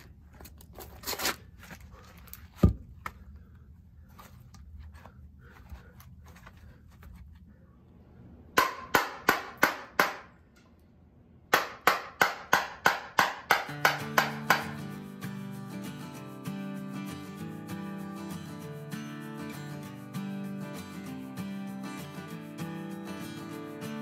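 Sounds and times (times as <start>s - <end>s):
mallet striking chisel into wood: 8.6s - 10.3s, 11.5s - 14.8s.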